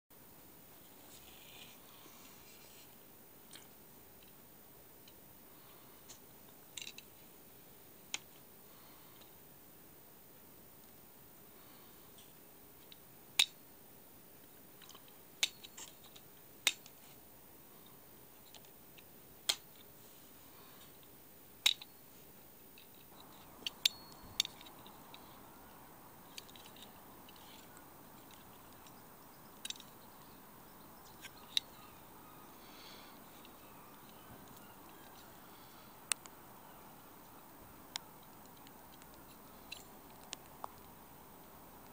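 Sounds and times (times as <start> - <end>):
faint steady hiss: 0.1 - 41.9.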